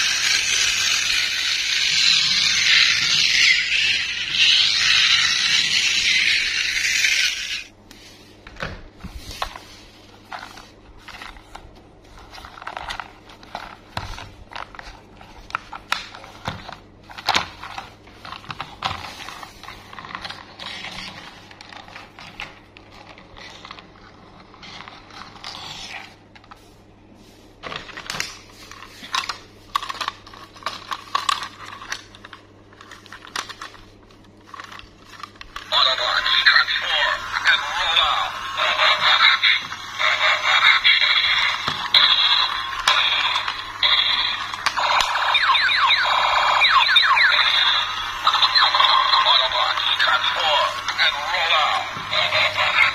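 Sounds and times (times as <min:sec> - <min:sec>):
plastic toys clicking and scraping: 0:00.0 - 0:07.7, 0:28.0 - 0:45.6, 0:47.0 - 0:52.9.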